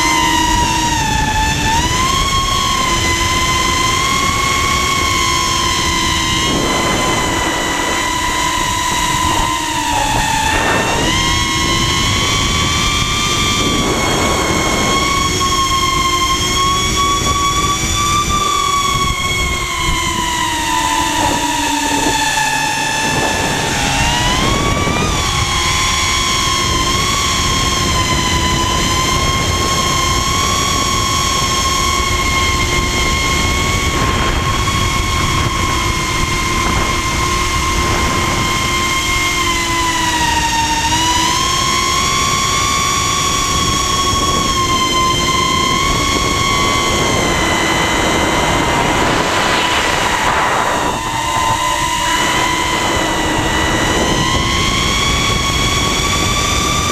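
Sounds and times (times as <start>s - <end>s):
drone propellers whining: 0.0s - 56.9s
wind rushing: 4.0s - 30.9s, 45.4s - 56.9s.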